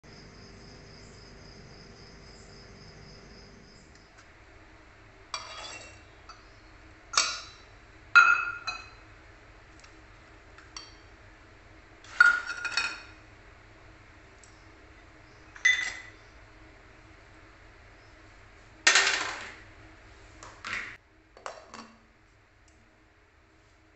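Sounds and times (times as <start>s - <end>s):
faint steady hum: 0.0s - 23.9s
metal bowls clinking on steel jar: 5.4s - 6.4s, 8.2s - 9.0s, 12.1s - 13.1s, 15.6s - 16.1s.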